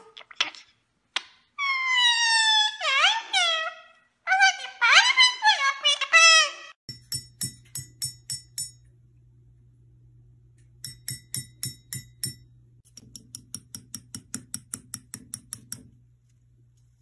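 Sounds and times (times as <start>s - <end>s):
beak tapping ceramic mugs: 6.9s - 8.9s, 10.8s - 16.0s
low steady hum: 6.9s - 17.0s.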